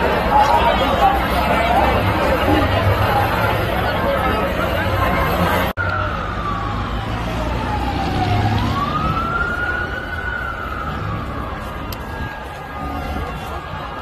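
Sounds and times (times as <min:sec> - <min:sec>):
crowd noise: 0:00.0 - 0:14.0
siren wailing: 0:05.8 - 0:14.0.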